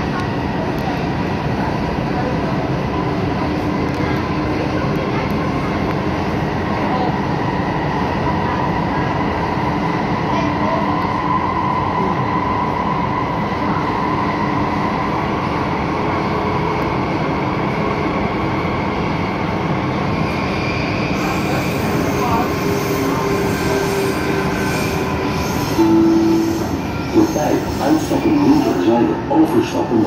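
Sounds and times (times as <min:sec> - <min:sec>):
wheels rumbling on rail: 0:00.0 - 0:30.0
high whine: 0:25.8 - 0:27.7.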